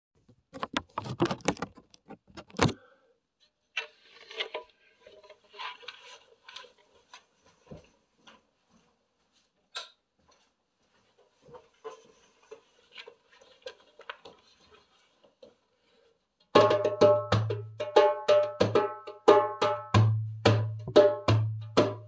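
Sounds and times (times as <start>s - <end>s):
camera handling knocks and rubs: 0.6s - 2.8s
soft rustles and taps: 5.2s - 15.8s.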